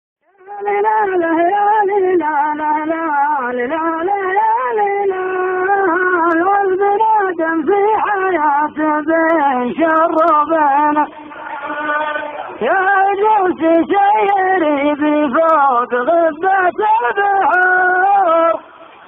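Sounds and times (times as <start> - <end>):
solo voice singing slow melody: 0.2 - 19.0.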